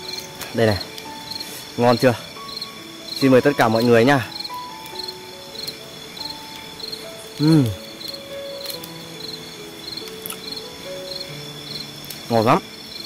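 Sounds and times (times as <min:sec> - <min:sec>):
high-pitched insect drone: 0:00.0 - 0:13.0
night insects chirping: 0:00.0 - 0:13.0
soft background music: 0:00.0 - 0:13.0
person murmuring mm: 0:07.4 - 0:07.9.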